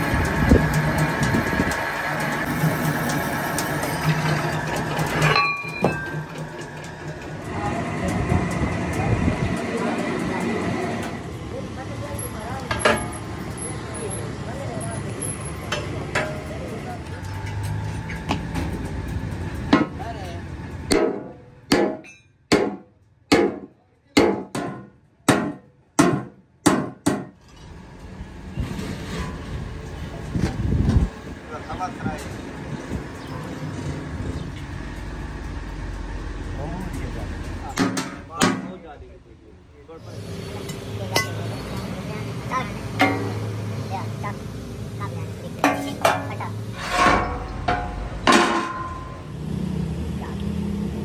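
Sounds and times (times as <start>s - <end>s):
drill press boring steel: 0.0s - 8.2s
hammer striking steel plate: 5.2s - 6.4s, 20.9s - 27.4s, 43.0s - 43.5s, 45.6s - 49.3s.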